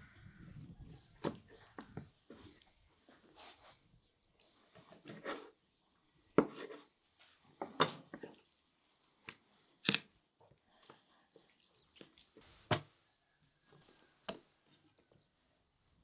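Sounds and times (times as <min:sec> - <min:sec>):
raw meat being pulled apart: 0:09.7 - 0:11.0.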